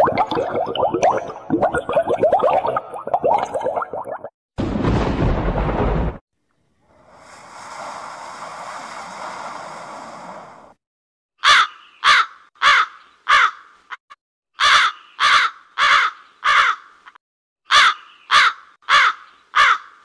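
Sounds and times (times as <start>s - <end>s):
crow cawing: 11.4s - 13.7s, 14.6s - 17.0s, 17.7s - 20.0s.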